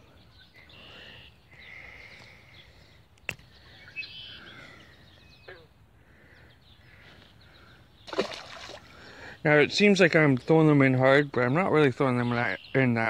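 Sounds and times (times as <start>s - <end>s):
faint birds chirping: 0.0s - 13.0s
fish splashing into water: 8.1s - 9.2s.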